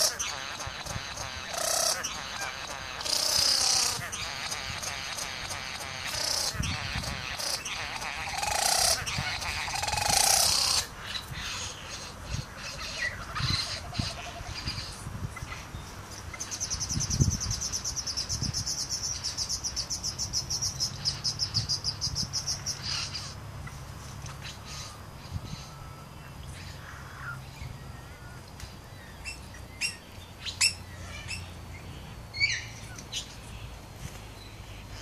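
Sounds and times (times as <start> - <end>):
high-pitched pulsing bird rattle: 0.0 - 10.8
bird calls: 0.0 - 35.0.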